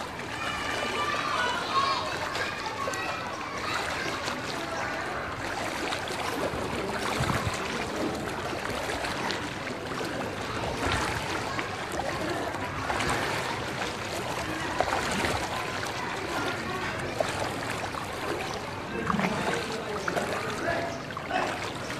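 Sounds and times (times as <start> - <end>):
water sloshing from wading: 0.0 - 21.9.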